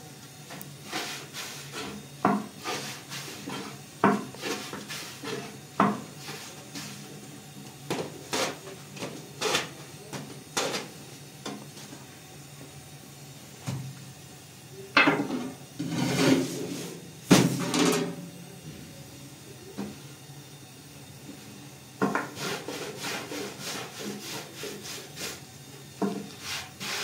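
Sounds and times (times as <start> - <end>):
loud scraping: 15.8 - 16.9.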